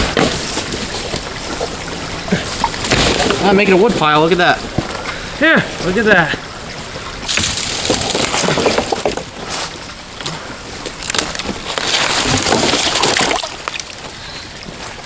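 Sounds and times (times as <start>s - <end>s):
wooden boards breaking and clattering: 0.0s - 1.2s, 2.6s - 3.8s, 7.3s - 9.3s, 10.9s - 13.9s.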